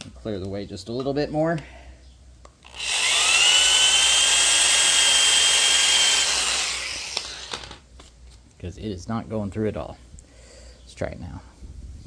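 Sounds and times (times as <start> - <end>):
rotary power tool whining: 2.6 - 7.8.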